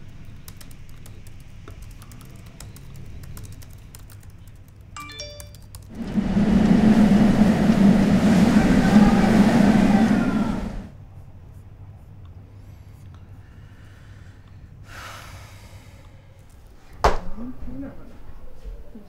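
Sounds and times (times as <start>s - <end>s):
bell-like chime tones: 5.0s - 5.7s.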